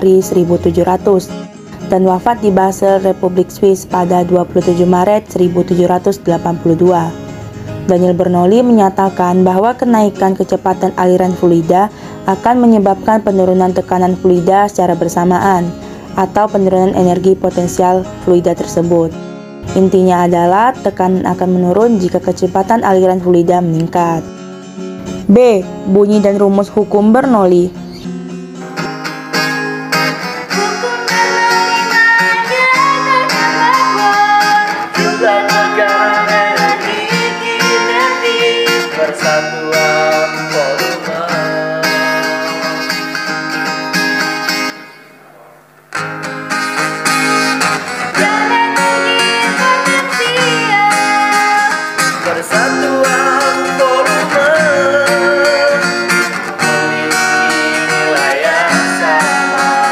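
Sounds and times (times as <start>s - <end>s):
acoustic guitar: 0.0s - 59.9s
person singing: 30.4s - 43.2s, 48.1s - 59.9s.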